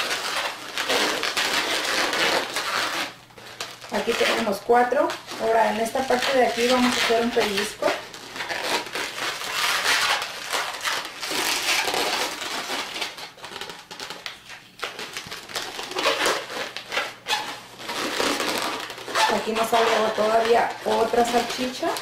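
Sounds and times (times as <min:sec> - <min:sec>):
balloons rubbing and squeaking: 0:00.0 - 0:22.0.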